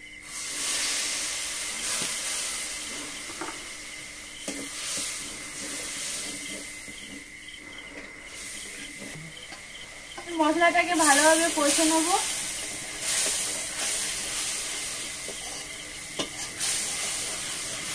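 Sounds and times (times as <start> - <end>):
hot oil hissing and sizzling: 0.0 - 17.9
metal spatula scraping pan: 12.6 - 17.9.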